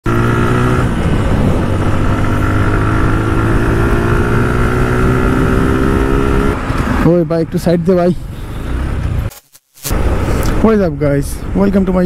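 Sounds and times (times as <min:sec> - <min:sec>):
road noise: 0:00.0 - 0:12.0
motorcycle engine cruising: 0:00.1 - 0:08.0
wind noise: 0:00.4 - 0:07.0.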